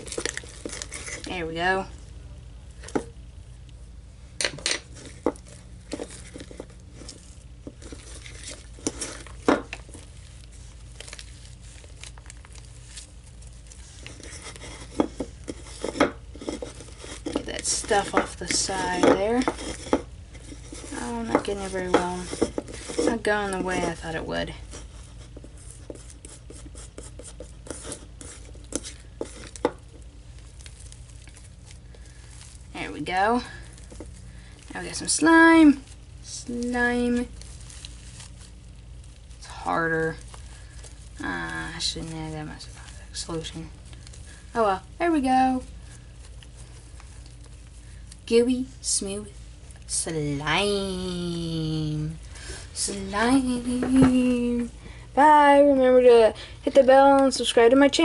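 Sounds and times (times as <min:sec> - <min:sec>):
stick stirring slime in bowl: 0:00.0 - 0:02.0, 0:04.4 - 0:58.0
steady low hum: 0:00.0 - 0:58.0.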